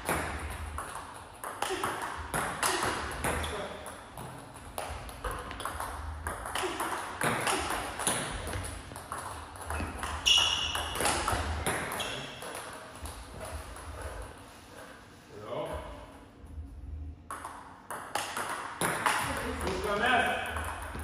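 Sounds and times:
high squeak: 0:10.2 - 0:11.0.

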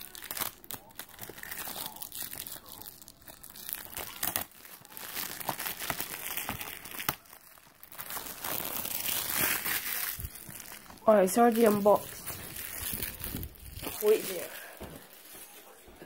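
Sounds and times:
plastic shrink-wrap crinkling: 0:00.0 - 0:15.8.

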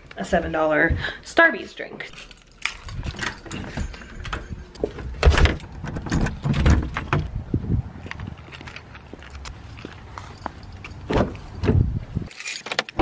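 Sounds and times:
keys jangling at a lock: 0:02.1 - 0:06.8, 0:08.0 - 0:11.6, 0:12.3 - 0:13.0.

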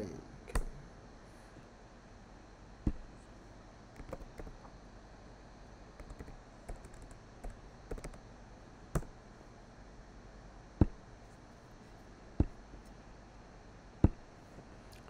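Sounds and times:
typing on computer keyboard: 0:04.0 - 0:04.6, 0:06.0 - 0:08.2.

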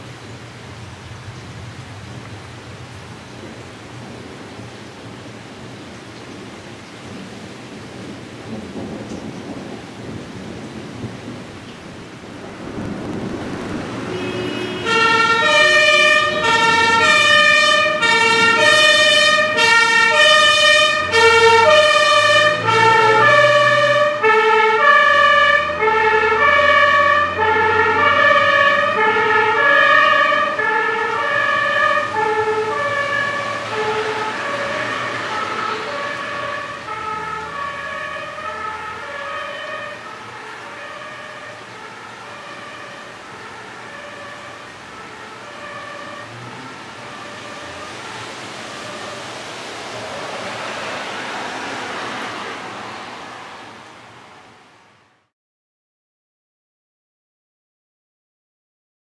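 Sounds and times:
fire engine two-tone siren: 0:12.0 - 0:53.8.

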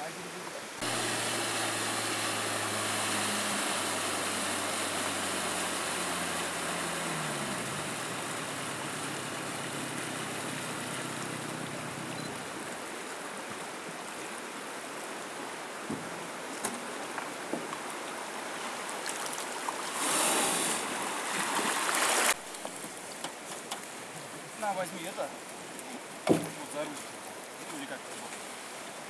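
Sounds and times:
water hissing: 0:00.8 - 0:12.8, 0:19.8 - 0:22.4
outboard motor running: 0:00.8 - 0:12.9.

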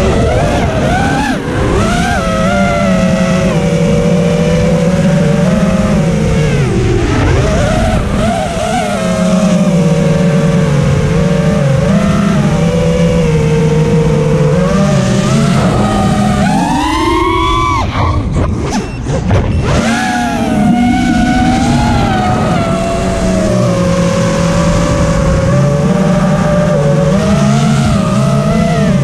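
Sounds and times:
drone motors whining: 0:00.0 - 0:29.0.

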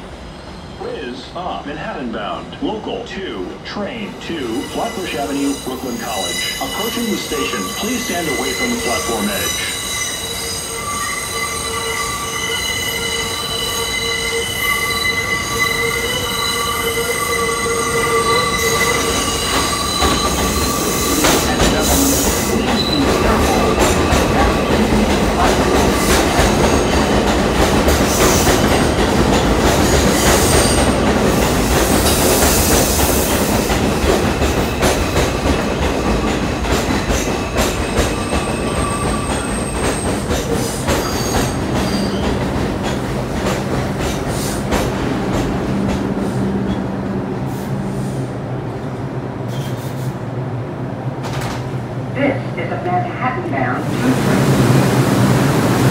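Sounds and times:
train wheels squealing: 0:04.4 - 0:24.2, 0:37.1 - 0:43.0, 0:49.5 - 0:50.2
train wheels rumbling and rattling: 0:15.2 - 0:52.0.

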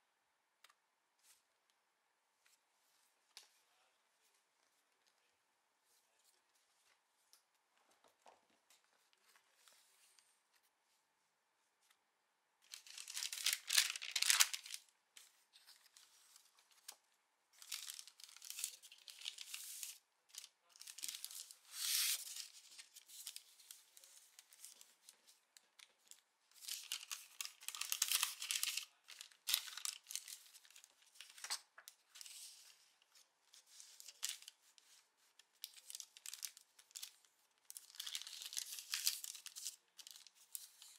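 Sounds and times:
paper rustling and crinkling: 0:12.7 - 0:40.9.

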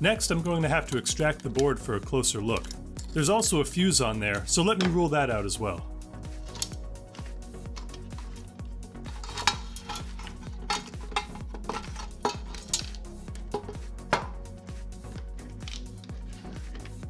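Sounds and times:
background music with steady beat: 0:00.0 - 0:17.0
clicks and metallic clinks: 0:02.5 - 0:03.2.

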